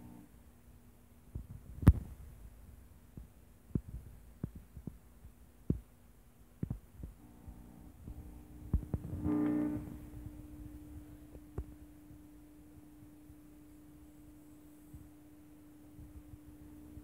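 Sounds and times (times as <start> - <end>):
motor hum: 0.0 - 0.4, 7.0 - 17.0.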